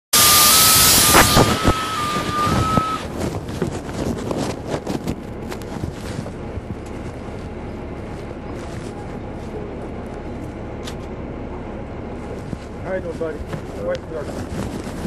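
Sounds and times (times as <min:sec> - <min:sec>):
loud air hiss: 0:00.2 - 0:03.1
bus running noise: 0:00.4 - 0:15.0.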